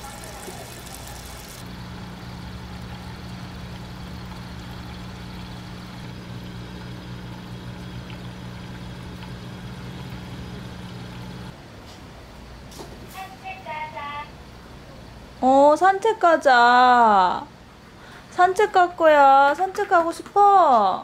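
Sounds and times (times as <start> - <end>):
aquarium pump humming: 0.0 - 11.6.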